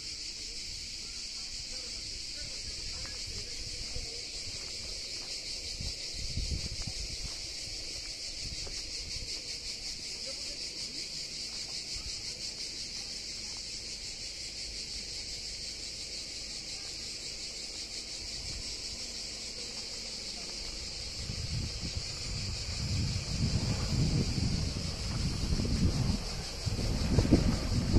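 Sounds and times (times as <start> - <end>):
insects buzzing: 0.0 - 27.9
wind on microphone: 5.6 - 9.4, 20.8 - 27.9.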